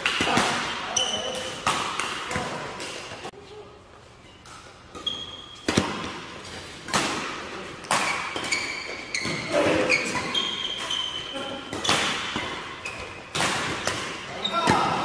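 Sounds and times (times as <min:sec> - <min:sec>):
court shoes squeaking: 0:00.0 - 0:15.0
racket striking shuttlecock: 0:04.4 - 0:09.3.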